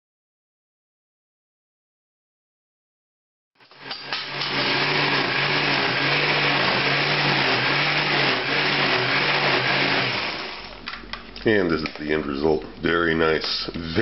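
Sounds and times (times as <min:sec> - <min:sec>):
blender motor whirring: 0:03.6 - 0:10.8.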